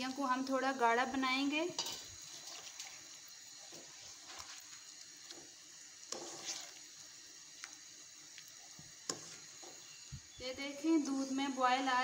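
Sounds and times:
spatula scraping in pan: 0:01.6 - 0:07.8, 0:08.5 - 0:10.1
milk bubbling: 0:02.0 - 0:10.4.

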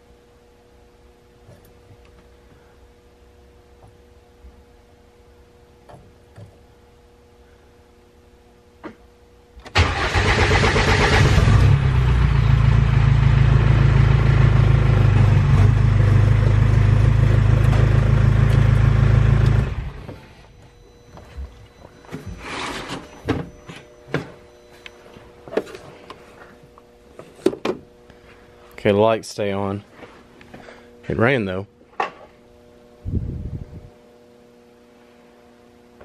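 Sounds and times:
diesel engine starting and running: 0:09.6 - 0:20.6.

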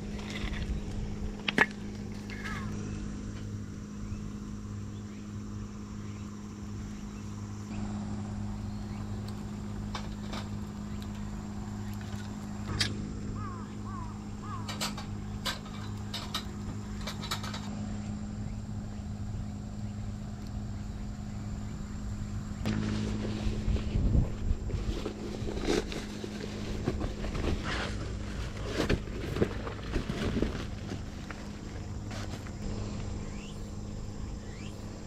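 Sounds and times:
steady low hum: 0:00.0 - 0:35.0
wood fire burning: 0:00.0 - 0:35.0
handling and rustling noises: 0:22.7 - 0:32.8.

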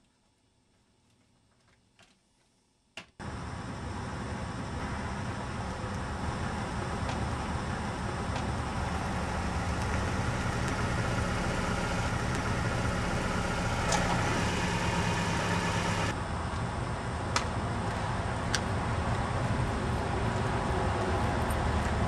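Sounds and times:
car engine approaching: 0:03.2 - 0:16.2.

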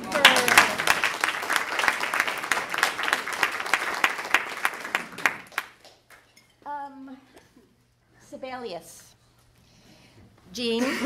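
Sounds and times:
audience applauding: 0:00.0 - 0:06.3.

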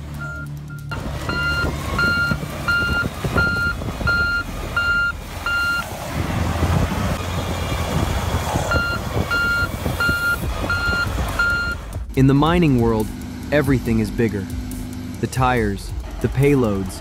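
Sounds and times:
diesel engine rumble: 0:00.0 - 0:17.0
reversing alarm beeps: 0:00.2 - 0:05.8, 0:08.7 - 0:11.8.

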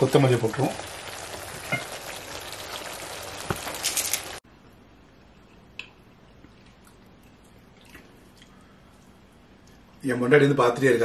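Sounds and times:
gravy bubbling and sizzling: 0:00.0 - 0:04.4.

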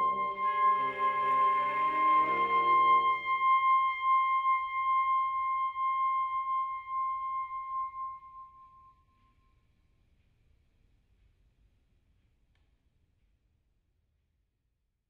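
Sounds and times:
woodwind quintet chord: 0:00.0 - 0:05.2
high woodwind note held: 0:00.0 - 0:08.4.

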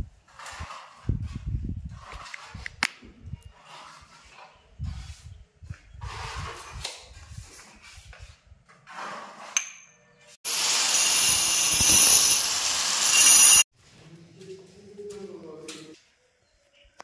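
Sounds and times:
angle grinder boring into stone: 0:10.5 - 0:13.7.

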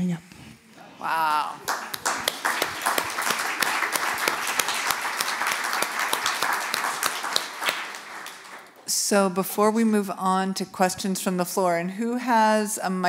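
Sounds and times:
audience clapping: 0:01.3 - 0:08.9.

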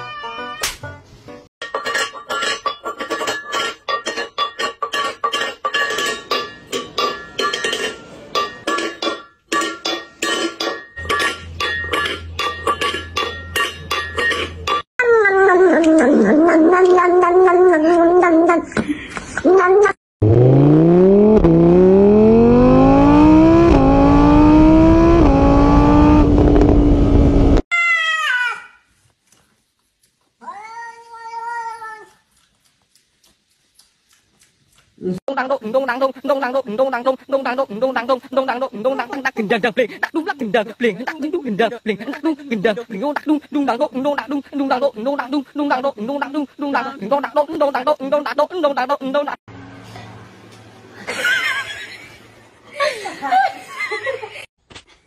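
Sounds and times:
engine-like sound rising in pitch: 0:20.2 - 0:27.6.

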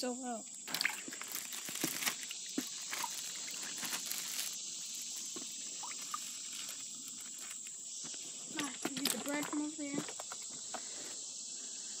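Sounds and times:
insects chirping chorus: 0:00.0 - 0:12.0
light clicks and rustles: 0:08.5 - 0:10.9.

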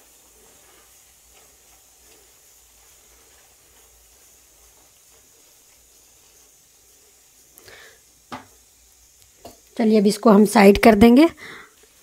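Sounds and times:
spatula stirring thick gravy: 0:00.0 - 0:07.6
low steady hiss: 0:00.0 - 0:12.0.

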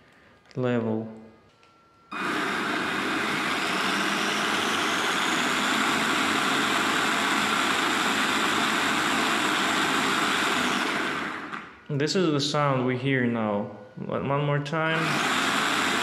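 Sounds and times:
electric motor whirring with high whine: 0:02.1 - 0:11.7, 0:15.0 - 0:16.0.

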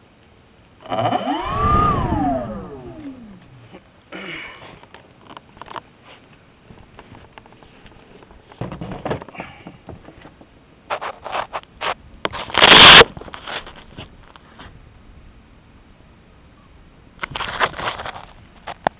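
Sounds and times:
loud rush of noise: 0:00.8 - 0:03.8
handling knocks and scrapes: 0:04.6 - 0:14.8.

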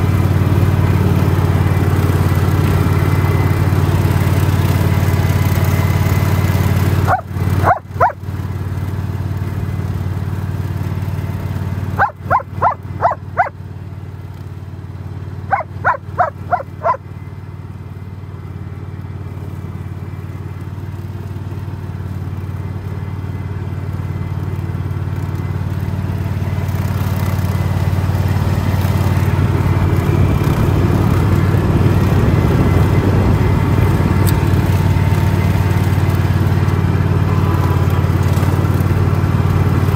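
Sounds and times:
mower engine running: 0:00.0 - 0:39.9
large dog barking: 0:07.1 - 0:08.2, 0:12.0 - 0:13.5, 0:15.5 - 0:17.0.

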